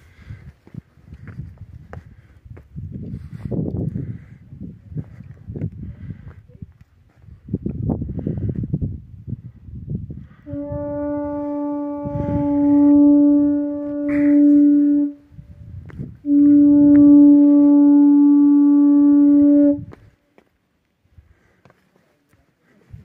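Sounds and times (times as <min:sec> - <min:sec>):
horn blowing long notes: 0:10.2 - 0:20.2.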